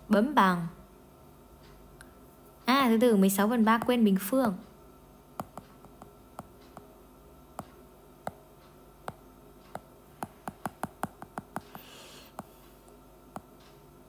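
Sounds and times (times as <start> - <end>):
tablet screen tap clicks: 5.4 - 6.9, 9.0 - 11.8.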